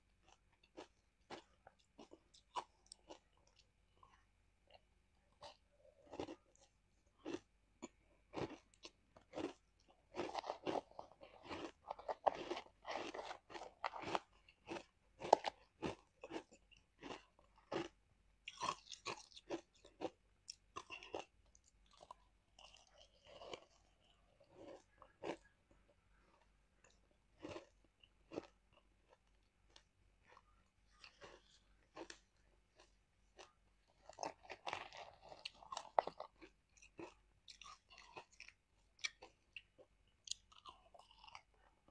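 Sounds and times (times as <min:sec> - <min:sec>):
ice crunching between teeth: 0:05.5 - 0:25.6, 0:26.9 - 0:39.7.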